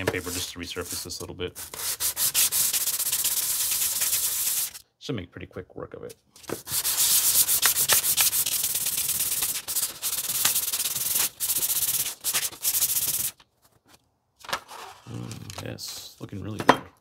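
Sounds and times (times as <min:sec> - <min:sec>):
metal scraping on sandpaper: 0:00.1 - 0:04.8, 0:06.7 - 0:13.4.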